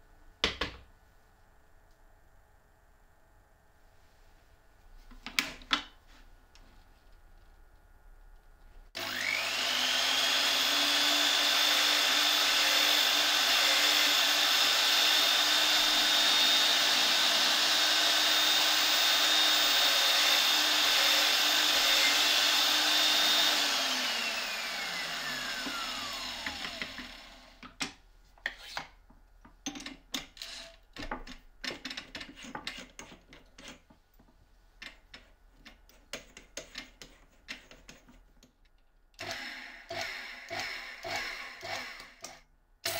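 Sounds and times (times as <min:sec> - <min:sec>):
drill boring into plastic: 0:09.0 - 0:27.6, 0:39.2 - 0:42.9
drill winding down whine: 0:09.0 - 0:27.6, 0:39.2 - 0:42.9.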